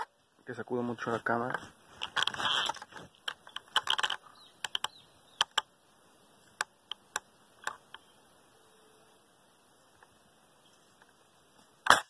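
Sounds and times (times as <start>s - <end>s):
sharp clicks and ticks: 2.1s - 5.7s.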